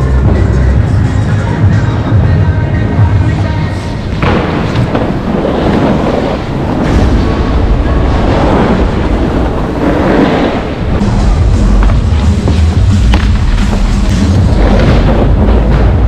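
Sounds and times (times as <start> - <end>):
wind over microphone: 3.9 - 16.0
snowboards scraping on snow: 8.2 - 14.8.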